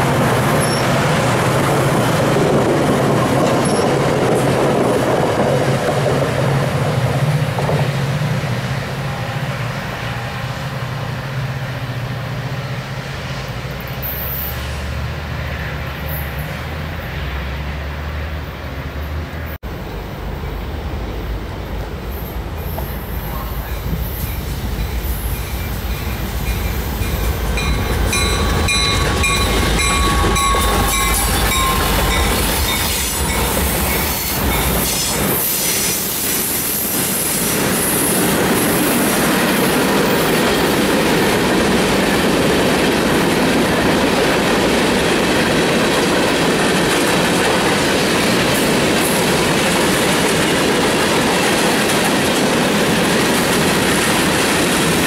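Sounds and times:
diesel locomotive engine rumble: 0:00.0 - 0:55.0
train wheels on rails: 0:00.0 - 0:55.0.

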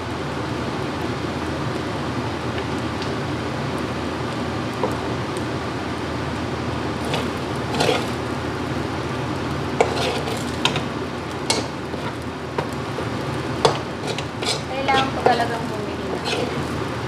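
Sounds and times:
frying sizzle: 0:00.0 - 0:17.0
spatula scraping a wok: 0:07.0 - 0:08.4, 0:09.8 - 0:16.9.

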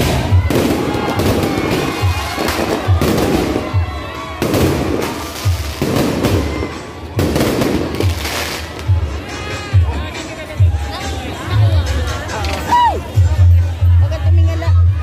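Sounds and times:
fireworks banging and crackling: 0:00.0 - 0:09.3
music with bass beat: 0:00.0 - 0:15.0.

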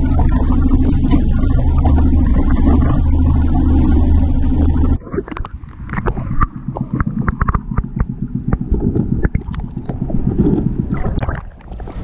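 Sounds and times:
underwater rumble of water: 0:00.0 - 0:12.0
sharp clicks and knocks: 0:04.6 - 0:11.4.

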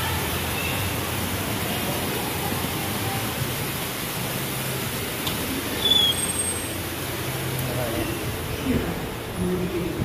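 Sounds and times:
steady rushing background noise: 0:00.0 - 0:10.0
glass door squeaking open: 0:05.8 - 0:06.6.

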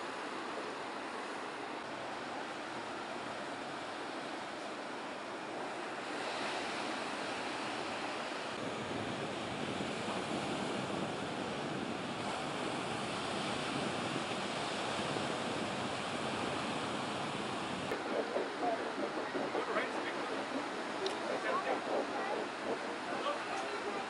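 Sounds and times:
ocean waves breaking: 0:00.0 - 0:24.0
wind on microphone: 0:06.0 - 0:24.0.

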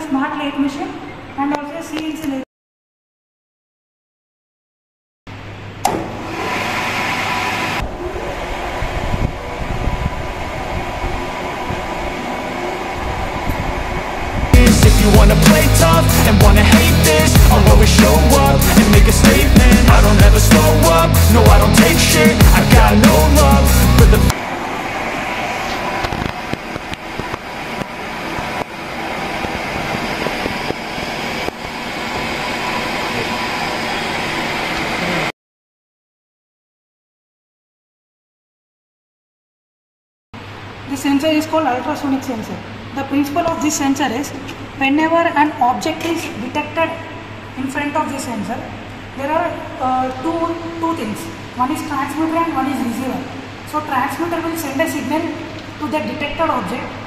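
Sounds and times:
lathe running: 0:06.0 - 0:35.3.

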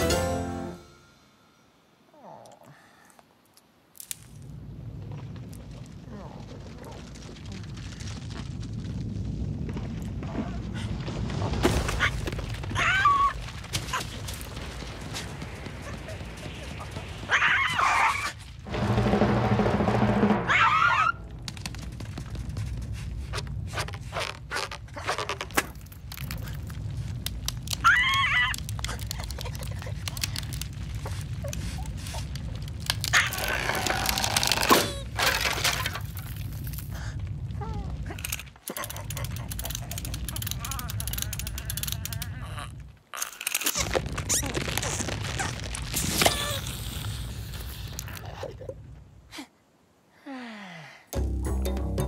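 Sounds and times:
low rumble: 0:18.3 - 0:24.2, 0:25.7 - 0:43.1.

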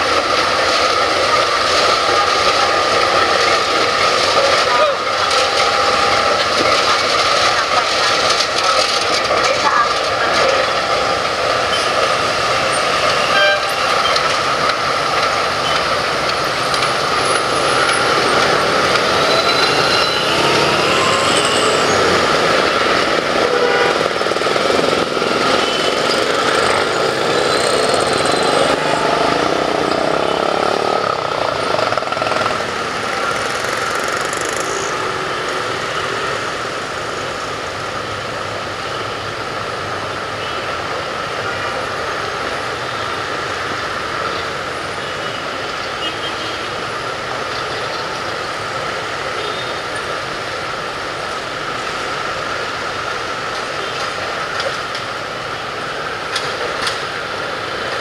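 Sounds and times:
diesel locomotive engine: 0:00.0 - 0:58.0
rail noise: 0:00.0 - 0:58.0.

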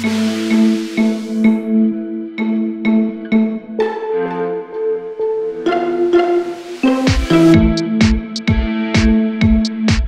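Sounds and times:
held synth notes: 0:00.0 - 0:09.6
kick drum beat: 0:07.0 - 0:10.0.

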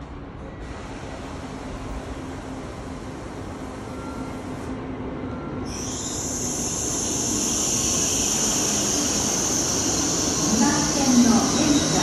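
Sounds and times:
high-pitched hiss or squeal: 0:05.7 - 0:12.0
train rumble: 0:06.4 - 0:12.0.

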